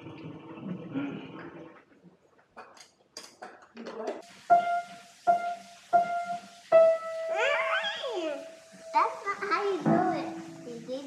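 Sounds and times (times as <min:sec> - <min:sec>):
high piano note: 0:04.5 - 0:09.0.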